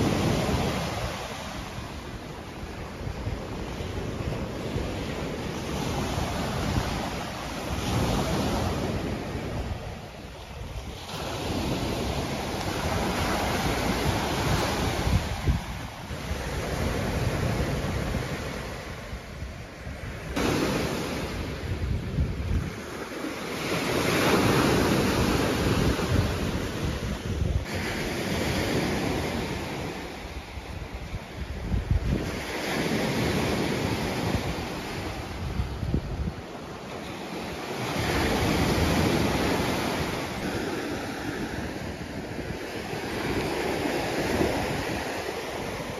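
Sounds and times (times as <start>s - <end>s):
waves breaking on sandy beach: 0.0s - 45.9s
wind buffeting microphone: 0.0s - 45.9s.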